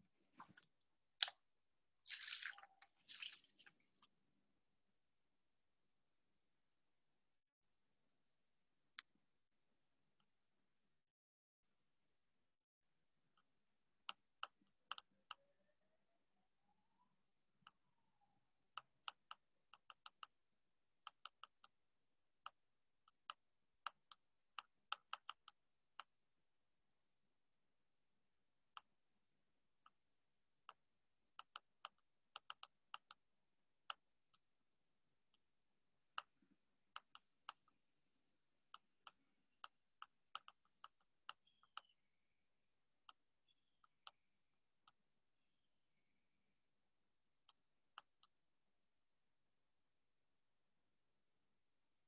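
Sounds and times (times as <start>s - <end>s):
keyboard typing: 38.5s - 42.4s.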